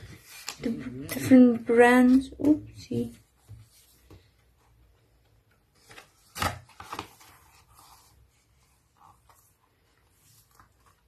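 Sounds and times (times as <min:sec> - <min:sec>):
paper pages rustling: 0:00.0 - 0:01.4, 0:05.5 - 0:11.0.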